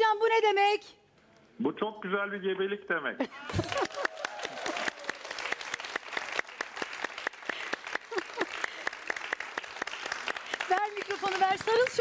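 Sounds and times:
audience clapping: 3.4s - 12.0s.

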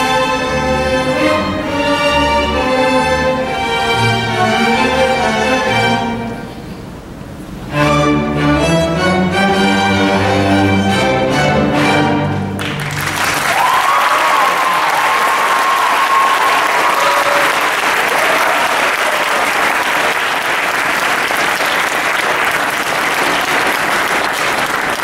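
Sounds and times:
string orchestra chord: 0.0s - 12.9s
audience applauding: 12.6s - 25.0s.

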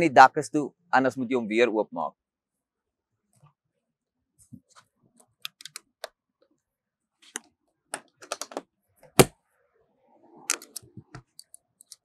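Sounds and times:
latches clicking shut: 10.5s - 12.0s.

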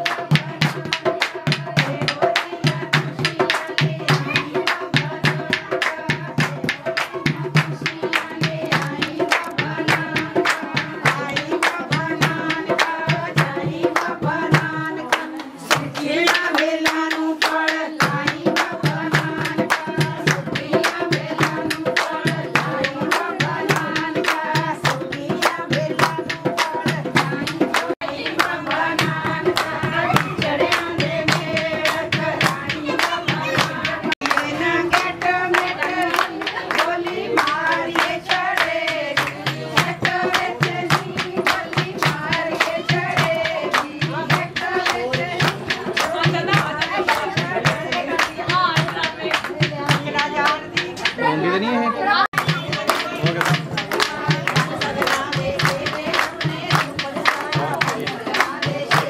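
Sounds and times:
hand-clapping rhythm: 0.0s - 51.4s, 52.2s - 59.0s
person singing: 1.7s - 13.0s, 13.8s - 38.2s.

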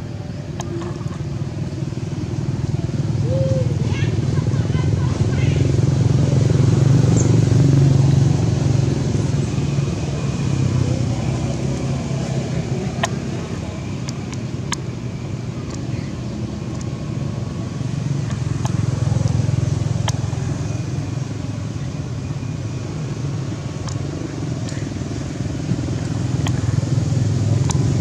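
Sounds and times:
motor engine humming: 0.0s - 28.0s
faint clicks: 15.6s - 15.9s, 16.7s - 16.9s, 23.8s - 24.8s.

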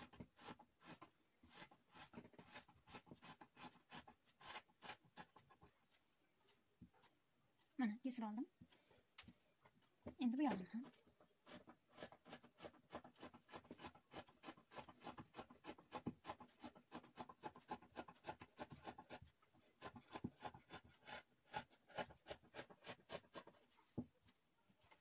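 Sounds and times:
scissors cutting fabric: 10.4s - 19.2s.

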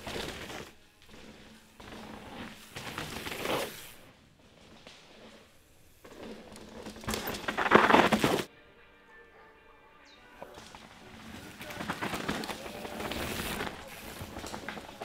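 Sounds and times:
bike tyres crunching on dirt: 0.0s - 8.5s, 10.4s - 15.0s.

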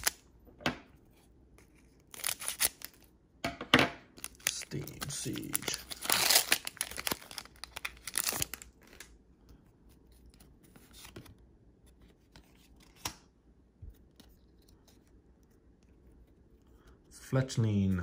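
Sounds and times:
foil wrapper crinkling: 2.1s - 3.0s, 4.2s - 9.1s
soft clicks of cards handled: 8.8s - 17.1s.

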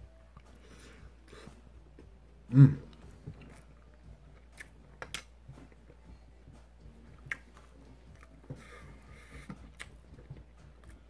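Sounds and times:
chewing food: 2.8s - 6.0s, 6.8s - 11.0s.

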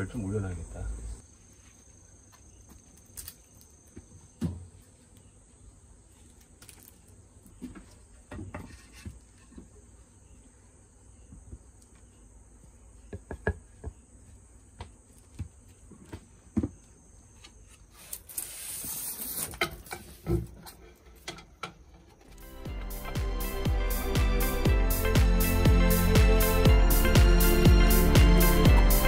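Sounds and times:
plastic sheet rustling: 17.9s - 19.6s.

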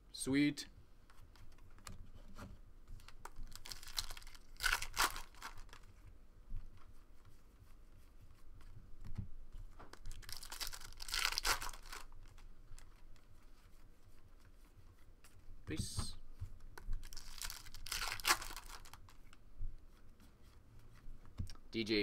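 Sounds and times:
wrapper tearing and crinkling: 3.0s - 5.8s, 9.9s - 13.0s, 17.0s - 19.2s.

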